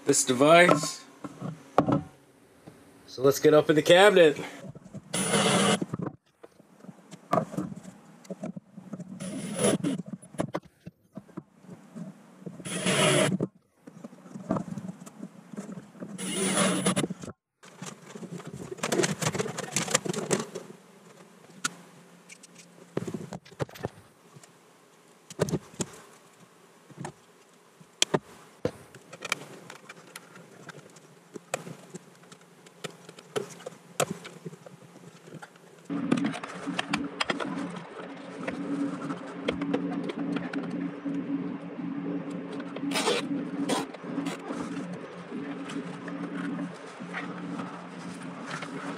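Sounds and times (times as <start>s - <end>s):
cordless drill whirring: 5.2s - 5.8s, 12.7s - 13.3s, 16.2s - 17.0s.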